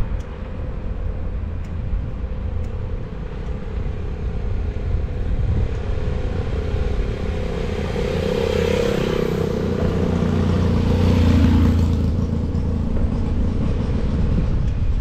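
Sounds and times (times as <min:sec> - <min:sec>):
wind rumble on microphone: 0:00.0 - 0:15.0
motorcycle engine passing: 0:06.0 - 0:13.5.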